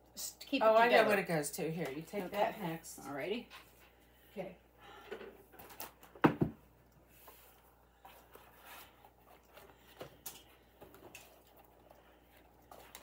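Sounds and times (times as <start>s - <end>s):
rustling and handling noises: 5.4s - 13.0s.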